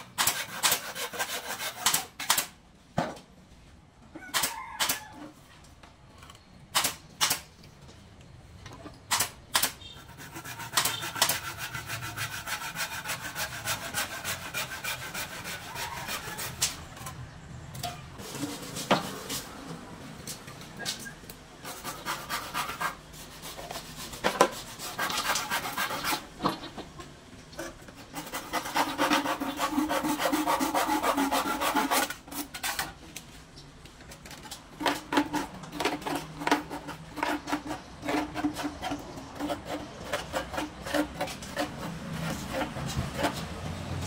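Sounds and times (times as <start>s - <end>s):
hand tool rasping bamboo: 0.1s - 2.5s, 9.1s - 16.8s, 21.6s - 26.3s, 27.6s - 33.0s, 34.5s - 43.8s.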